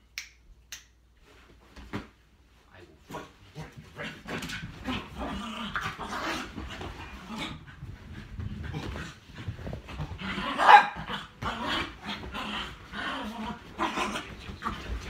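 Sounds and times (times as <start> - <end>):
large dog barking and growling: 9.8 - 15.0.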